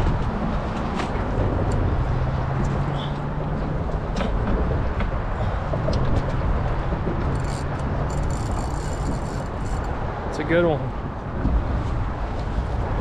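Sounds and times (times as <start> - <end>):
low mechanical rumble: 0.0 - 10.2
wind: 0.0 - 13.0
water noise: 5.4 - 10.2.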